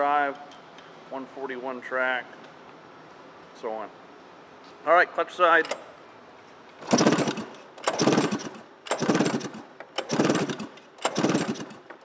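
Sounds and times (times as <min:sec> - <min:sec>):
two-stroke engine cranking over: 0:06.8 - 0:12.0.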